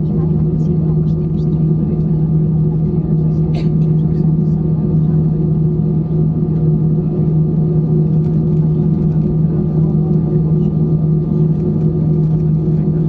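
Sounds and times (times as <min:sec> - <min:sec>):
continuous low rumble: 0:00.0 - 0:13.0
jet engines humming: 0:00.0 - 0:13.0.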